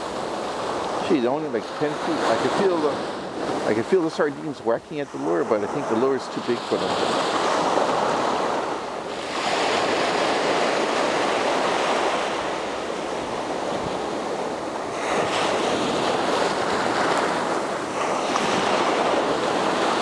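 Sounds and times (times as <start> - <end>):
small waves breaking on beach: 0.0 - 20.0.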